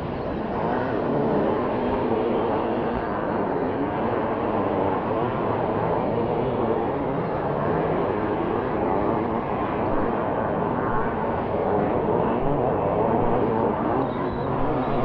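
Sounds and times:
motocross bike engines racing: 0:00.0 - 0:15.0.

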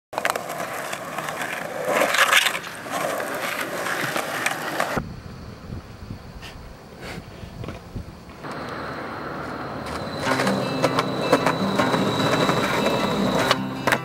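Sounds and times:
skateboard wheels rolling on asphalt: 0:00.1 - 0:14.0.

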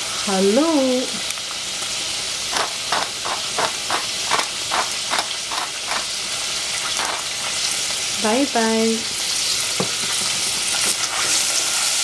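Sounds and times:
green beans sizzling in a saucepan: 0:00.0 - 0:12.0
pepper mill grinding clicks: 0:02.5 - 0:06.1, 0:07.0 - 0:07.3.

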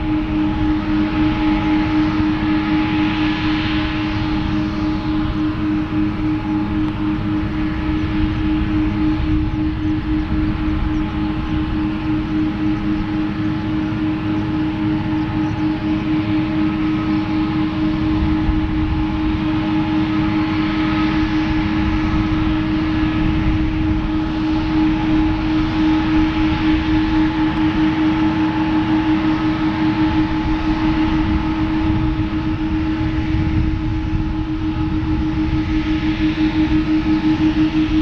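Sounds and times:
jet engines whining: 0:00.0 - 0:38.0.

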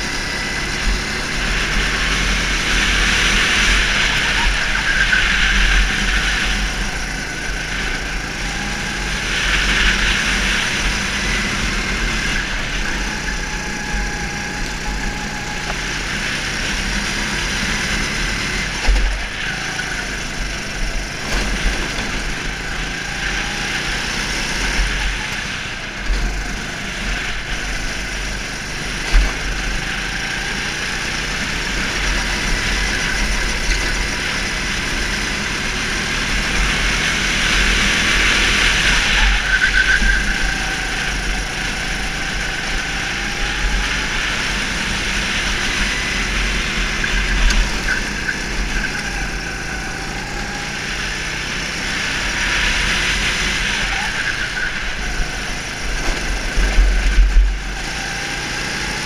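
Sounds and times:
go-kart engine running: 0:00.0 - 0:59.0.

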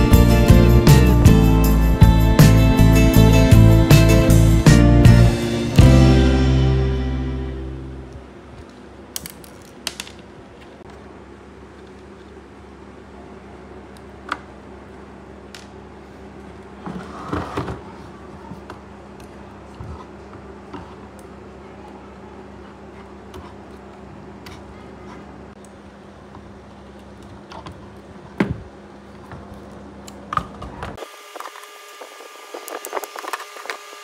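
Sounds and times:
steady low hum: 0:00.0 - 0:30.7.

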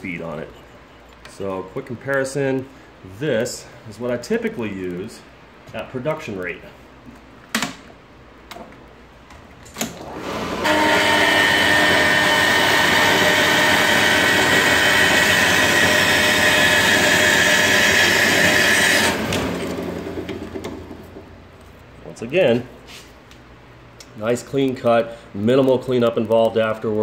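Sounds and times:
band saw cutting metal: 0:10.1 - 0:20.4.

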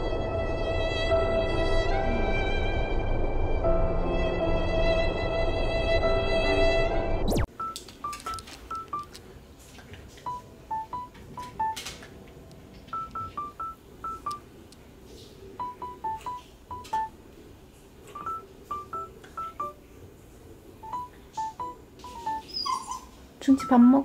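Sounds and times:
electronic beeping tune: 0:07.3 - 0:09.2, 0:10.3 - 0:11.8, 0:12.9 - 0:14.4, 0:15.6 - 0:17.1, 0:18.2 - 0:19.8, 0:20.8 - 0:22.5, 0:23.5 - 0:24.0.

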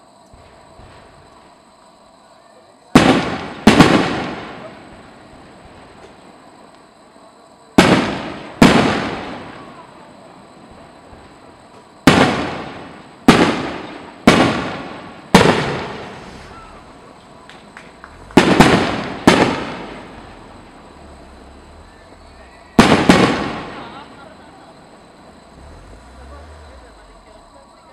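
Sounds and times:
firework shells bursting: 0:03.0 - 0:06.3, 0:11.1 - 0:25.6
faint firework pops: 0:03.0 - 0:06.9, 0:07.8 - 0:09.9, 0:10.7 - 0:22.2, 0:22.8 - 0:24.6.

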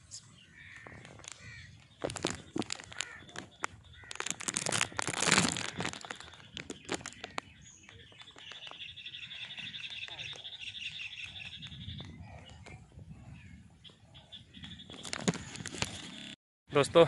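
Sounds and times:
crackling and rustling clicks: 0:00.8 - 0:10.5.

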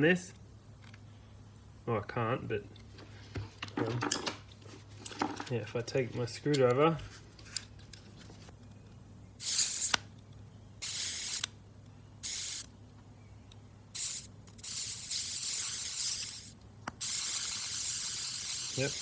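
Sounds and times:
compressed air hissing from valve: 0:09.4 - 0:10.0, 0:10.8 - 0:11.5, 0:12.2 - 0:12.7, 0:14.0 - 0:19.0.

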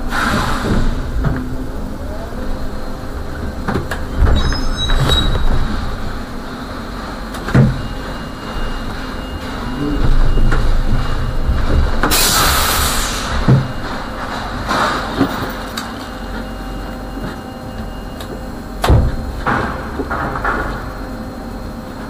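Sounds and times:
trolleybus rumbling: 0:00.0 - 0:22.0
knocks and thumps: 0:08.9 - 0:12.2, 0:13.4 - 0:15.5
compressed air hiss: 0:12.1 - 0:13.4.

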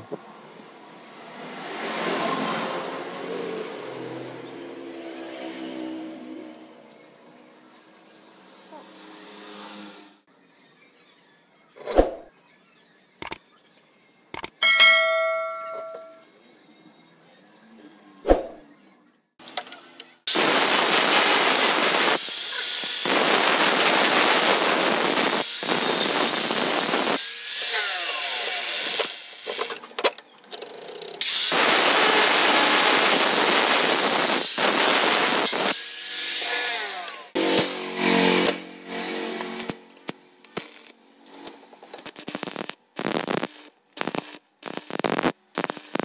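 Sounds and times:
power tool motor whining: 0:31.3 - 0:39.8.

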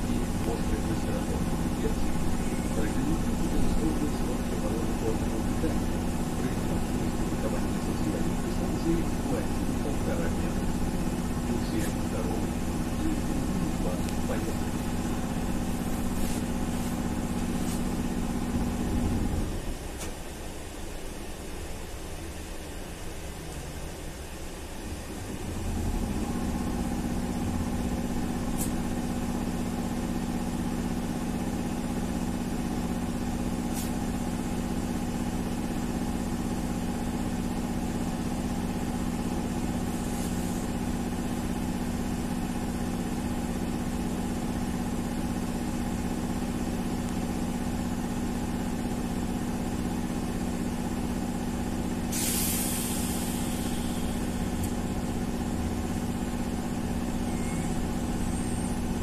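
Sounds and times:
electrical hum: 0:00.0 - 0:59.0
air hiss: 0:33.6 - 0:34.2, 0:39.9 - 0:40.8, 0:52.1 - 0:54.8.

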